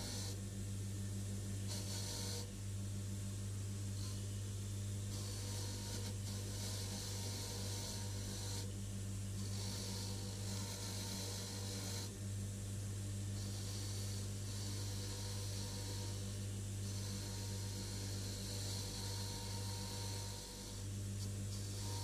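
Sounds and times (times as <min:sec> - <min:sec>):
bench grinder motor humming: 0:00.0 - 0:00.4, 0:01.7 - 0:02.5, 0:05.1 - 0:08.7, 0:09.3 - 0:12.1, 0:13.4 - 0:22.0.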